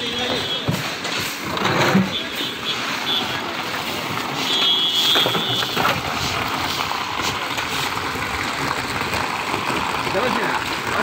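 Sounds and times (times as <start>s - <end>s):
ice clattering onto road: 0.0s - 11.0s.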